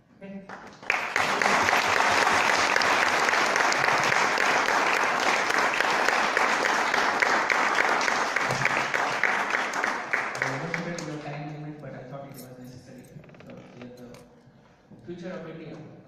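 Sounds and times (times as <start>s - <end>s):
audience applauding: 0.5s - 11.3s.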